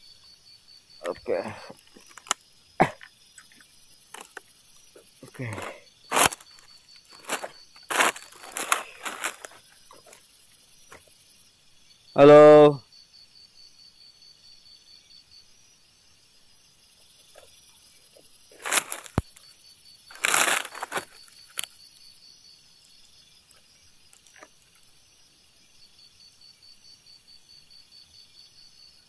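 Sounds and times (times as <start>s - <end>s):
insects chirping: 0.0s - 29.0s
dry leaves rustling and twigs snapping: 1.7s - 2.4s, 4.1s - 4.5s, 5.2s - 10.2s, 18.5s - 19.5s, 20.1s - 21.8s, 23.5s - 24.9s.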